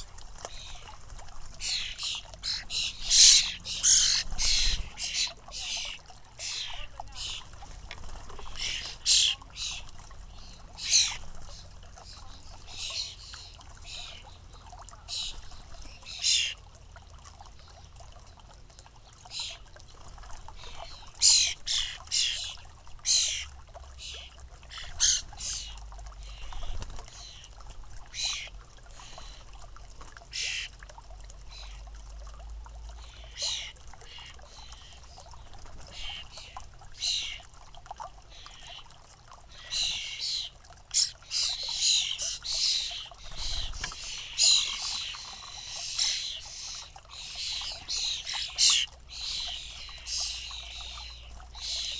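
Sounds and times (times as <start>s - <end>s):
fledgling birds begging calls: 1.6s - 14.3s, 15.1s - 16.6s, 20.6s - 27.5s, 39.5s - 51.9s.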